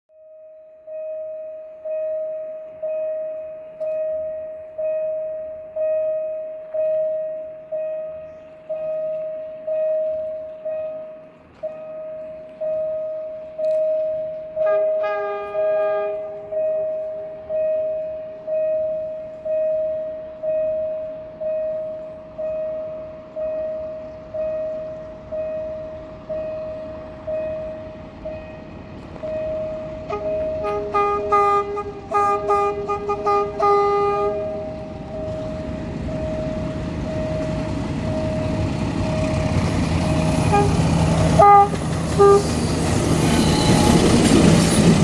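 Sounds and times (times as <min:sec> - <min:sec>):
level crossing bell ringing: 0:00.2 - 0:32.3
train rumble: 0:01.6 - 0:45.0
train horn: 0:14.5 - 0:17.0, 0:29.4 - 0:35.0, 0:40.0 - 0:45.0.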